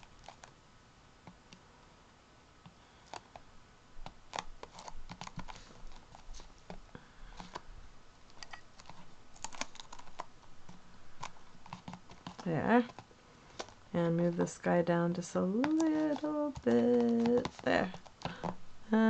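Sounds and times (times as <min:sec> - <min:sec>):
paper cutouts tapping and rustling: 0:04.1 - 0:07.7, 0:08.3 - 0:14.5, 0:15.1 - 0:18.6.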